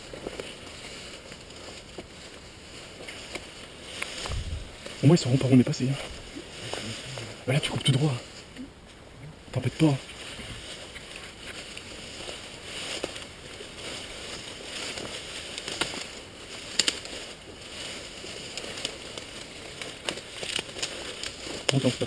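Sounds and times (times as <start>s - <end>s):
undergrowth rustling underfoot: 0.0s - 22.0s
twigs snapping: 3.0s - 5.0s, 10.9s - 22.0s.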